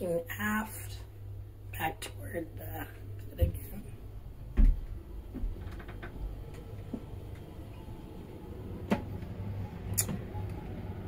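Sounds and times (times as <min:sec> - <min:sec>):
low steady hum: 0:00.0 - 0:11.0
light clicks and knocks: 0:04.5 - 0:07.5.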